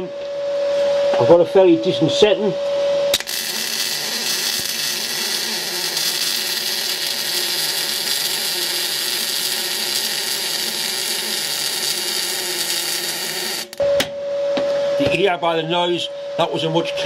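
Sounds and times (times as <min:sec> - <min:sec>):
welding arc burning: 0:03.1 - 0:13.8.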